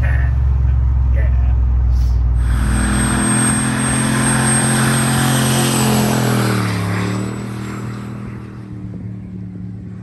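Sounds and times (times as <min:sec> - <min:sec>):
engine running: 0:00.0 - 0:10.0
high turbo whistle: 0:02.3 - 0:07.4.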